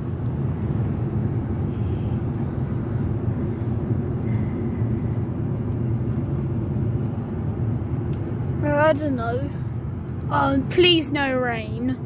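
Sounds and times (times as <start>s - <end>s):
car road rumble from inside: 0.0s - 12.0s.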